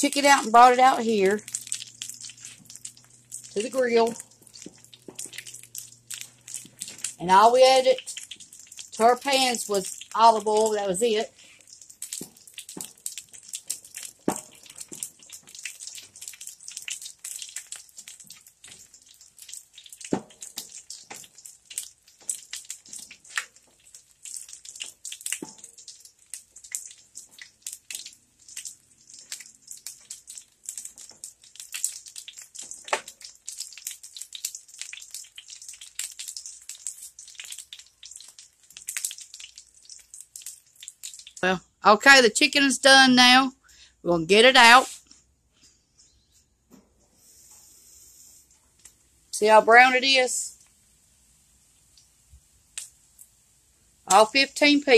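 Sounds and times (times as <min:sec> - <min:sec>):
chicken sizzling in oil: 0:00.0 - 0:41.5.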